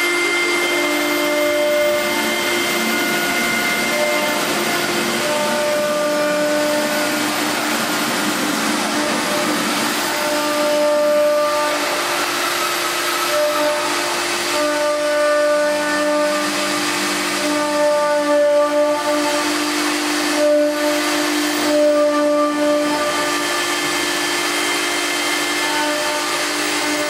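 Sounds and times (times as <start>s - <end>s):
machine hiss: 0.0s - 27.0s
whining tones: 0.0s - 27.0s.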